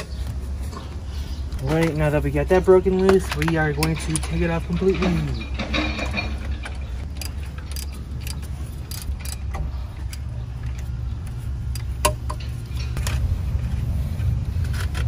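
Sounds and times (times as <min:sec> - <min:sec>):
metallic clank: 0:02.9 - 0:10.3, 0:11.8 - 0:13.3
ratchet clicking: 0:07.0 - 0:13.2.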